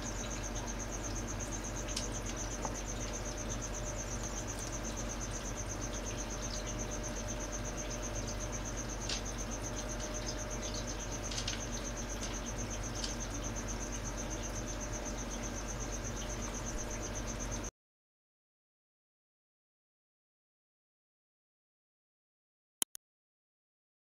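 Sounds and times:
cricket chirping: 0.0s - 17.7s
low steady hum: 0.0s - 17.7s.

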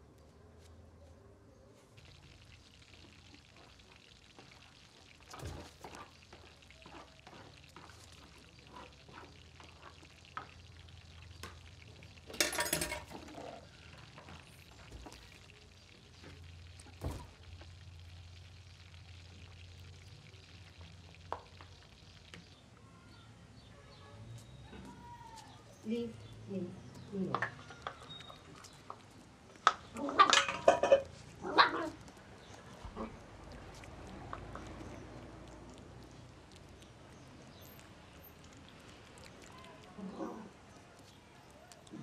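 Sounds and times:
bowls set down on stone counter: 12.3s - 13.3s, 30.3s - 31.1s.

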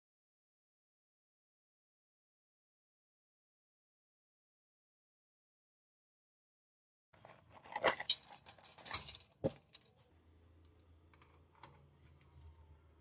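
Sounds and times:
faint low hum: 7.2s - 13.0s
metal tray rattling and clinking: 7.5s - 9.9s.

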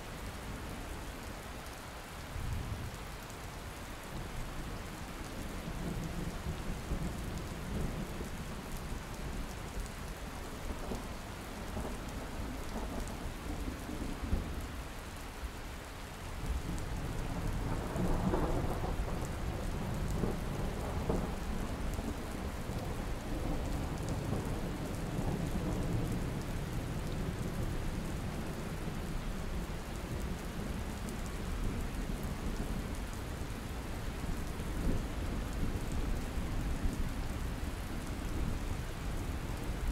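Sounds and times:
steady rain: 0.0s - 39.9s.

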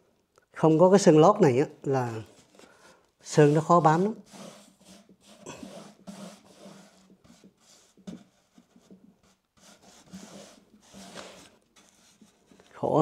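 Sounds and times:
paintbrush swishing on ridged wood: 3.2s - 12.8s.

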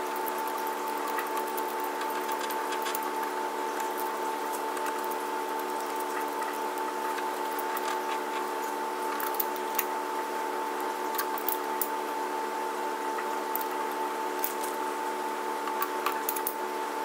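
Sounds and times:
steady background hum: 0.0s - 17.0s
small metallic clicks: 15.6s - 16.6s.

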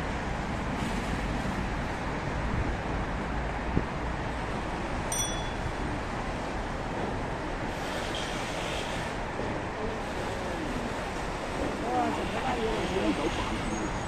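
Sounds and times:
road traffic noise: 0.0s - 14.0s
brief high ding: 5.1s - 5.7s.

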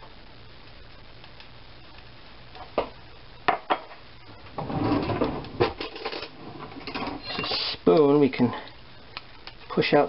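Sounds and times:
utensils scraping and rattling: 4.6s - 7.8s.

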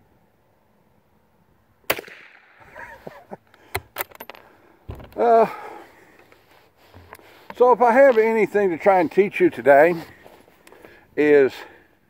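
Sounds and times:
rifle shot: 1.9s - 2.6s
man's loud exclamation: 5.2s - 5.8s.

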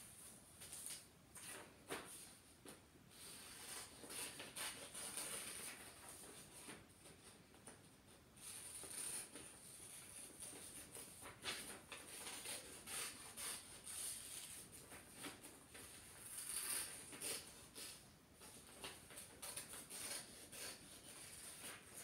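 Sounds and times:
paper rustling: 0.0s - 22.0s
scissors snipping paper: 8.4s - 22.0s.

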